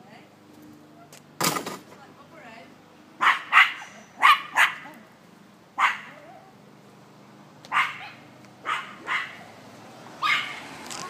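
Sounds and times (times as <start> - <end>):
dog barking: 3.2 - 4.9, 5.8 - 6.4, 7.7 - 9.5, 10.2 - 10.6.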